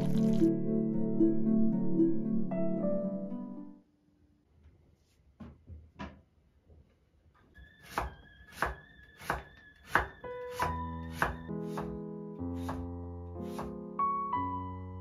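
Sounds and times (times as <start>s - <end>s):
soft piano music: 0.0s - 3.8s, 10.2s - 15.0s
knife chopping on cutting board: 7.9s - 12.0s, 12.6s - 13.8s.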